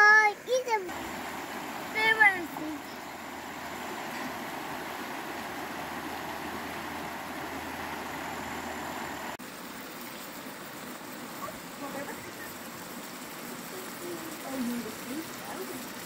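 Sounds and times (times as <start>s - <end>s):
river rapids rushing over rocks: 0.9s - 9.4s.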